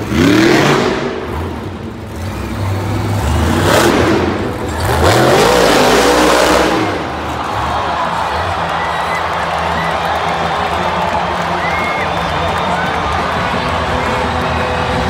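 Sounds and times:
truck engine revving hard: 0.0 - 8.8.

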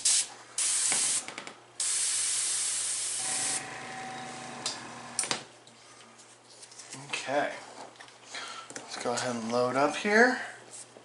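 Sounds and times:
airbrush blowing air: 1.8 - 3.7.

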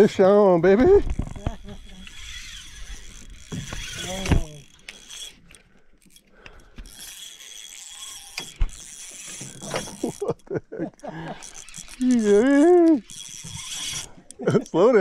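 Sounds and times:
fishing reel winding: 1.0 - 15.0.

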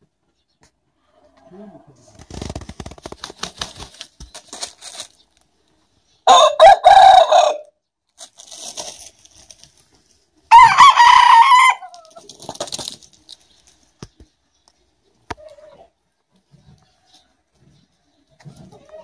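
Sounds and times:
rooster crowing high: 6.3 - 7.7, 10.5 - 11.9
rooster crowing low: 6.3 - 7.7, 10.5 - 11.9.

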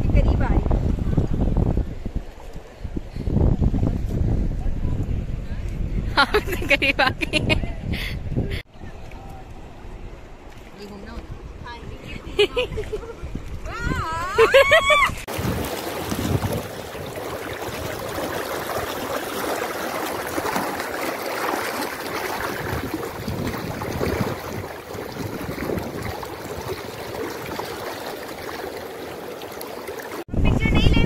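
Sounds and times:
fast-flowing river rushing: 15.3 - 30.2.

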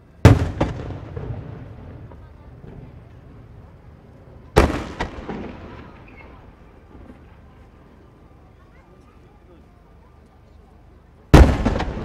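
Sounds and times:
firework crack: 0.0 - 8.2, 11.3 - 12.0
echoes of firework bursts: 0.0 - 8.4, 11.3 - 12.0
firework booms: 0.2 - 7.5, 11.3 - 12.0.

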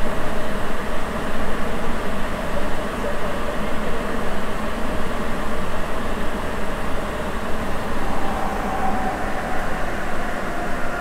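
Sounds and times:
subway train running noise: 0.0 - 11.0
faint steady tone: 7.0 - 11.0.

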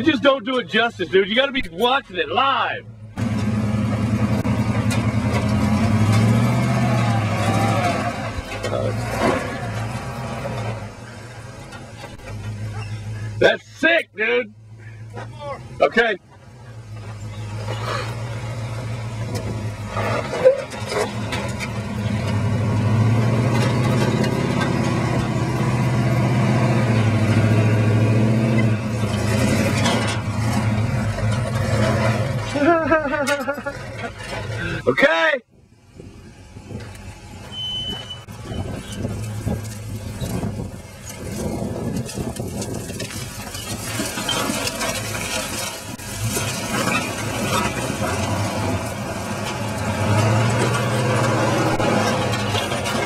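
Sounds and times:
truck engine pulling under load: 2.9 - 13.5, 14.6 - 35.0, 36.0 - 53.0
pickup truck engine running: 35.9 - 53.0
rocks crunching under tyres: 36.7 - 53.0.

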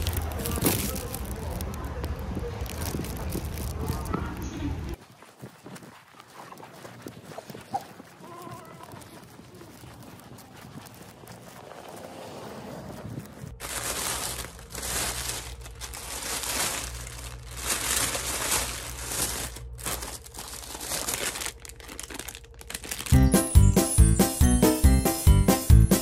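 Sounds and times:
plastic bag crinkling: 0.0 - 5.0, 6.5 - 12.1, 12.9 - 24.0
music: 22.9 - 26.0.

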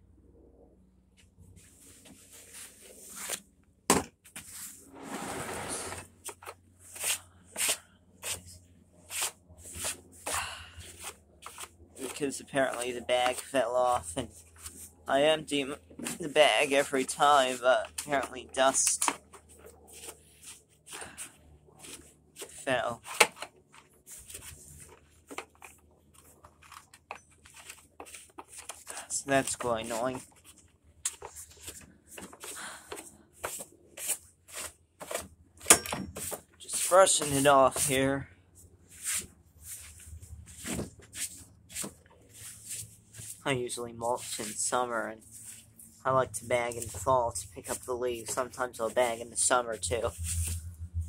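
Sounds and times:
rustling scrape: 1.6 - 3.4, 4.4 - 10.0, 19.2 - 26.8, 38.8 - 46.1, 46.7 - 51.0
gloved hand brushing debris: 38.9 - 46.0.

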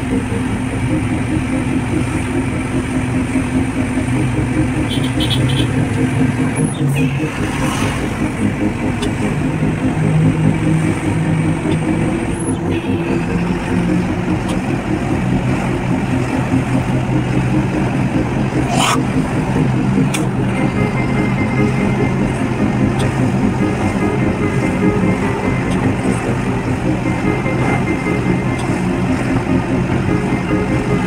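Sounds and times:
road noise: 0.0 - 31.0
vehicle engine running: 0.0 - 31.0.

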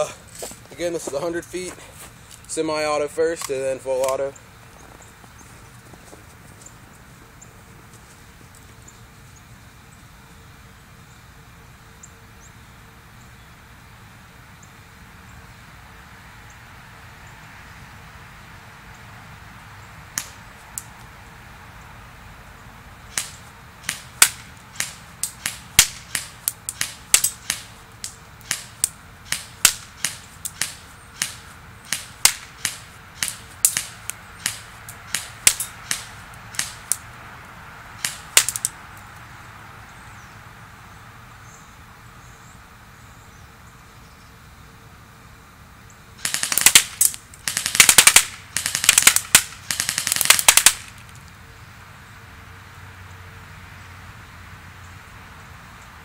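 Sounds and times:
airsoft gun shots cracking: 23.1 - 37.0, 38.0 - 38.7, 46.2 - 51.0.

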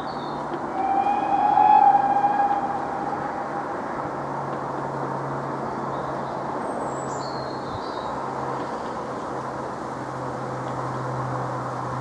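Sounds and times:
steam locomotive whistle: 0.7 - 4.2
low rumble: 0.7 - 4.9.

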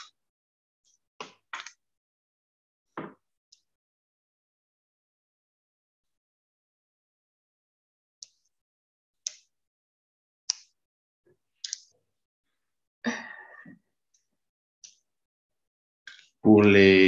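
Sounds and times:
breathy sigh: 13.0 - 13.8.

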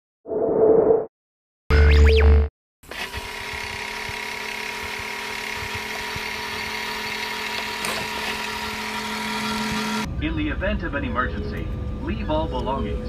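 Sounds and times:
airliner cabin drone: 9.6 - 13.0.

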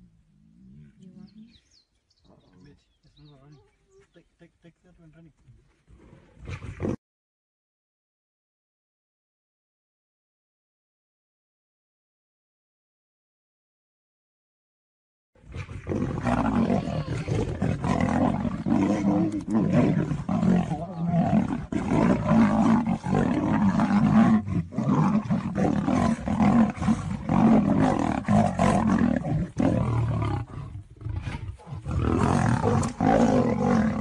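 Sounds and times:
big cats roaring and growling: 15.4 - 34.0.

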